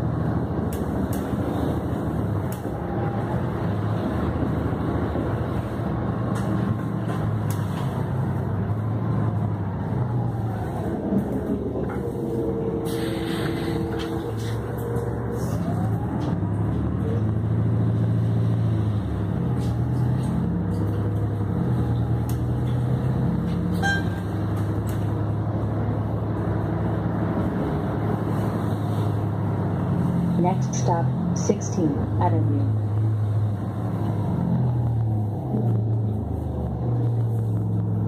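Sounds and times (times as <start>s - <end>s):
bus engine running: 0.0s - 38.0s
road noise: 0.0s - 38.0s.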